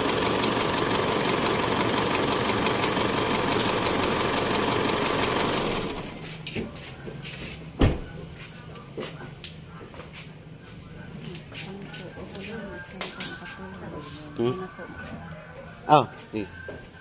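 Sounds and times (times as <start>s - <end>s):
pickup engine idling: 0.0s - 6.3s.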